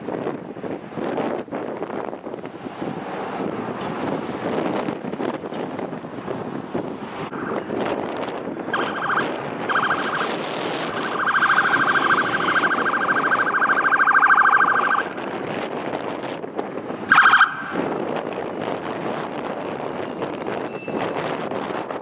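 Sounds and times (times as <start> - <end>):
wind noise on microphone: 0.0 - 22.0
buzzing electronic siren horn: 8.7 - 15.1, 17.1 - 17.8.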